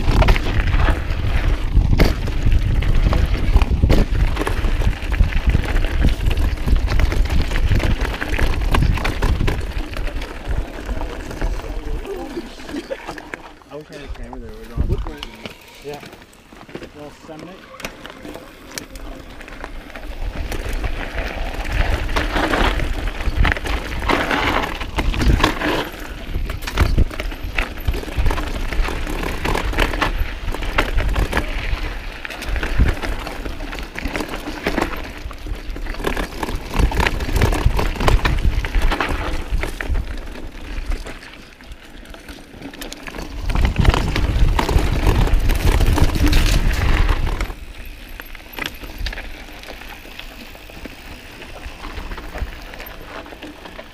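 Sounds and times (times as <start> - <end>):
wind buffeting microphone: 0.0 - 12.3, 14.2 - 15.3, 18.5 - 41.1, 43.1 - 48.1
bike rattling over rocks: 0.0 - 53.9
bike tyres crunching: 0.0 - 53.9.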